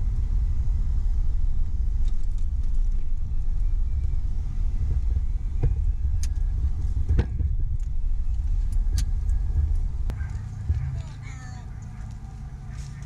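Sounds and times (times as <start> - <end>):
car engine and tyres rumbling: 0.0 - 13.0.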